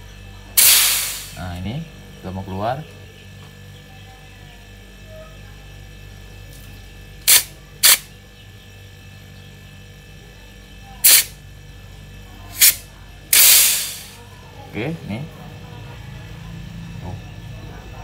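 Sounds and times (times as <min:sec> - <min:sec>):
steady low hum: 0:00.0 - 0:18.0
gas hissing spurts: 0:00.6 - 0:01.4, 0:07.3 - 0:08.1, 0:11.0 - 0:11.4, 0:12.5 - 0:14.2.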